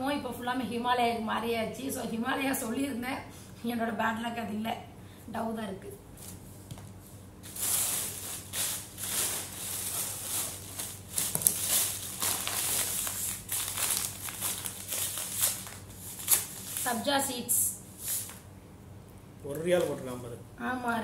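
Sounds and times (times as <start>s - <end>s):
plastic bag rustling: 7.4s - 17.3s, 18.0s - 18.4s.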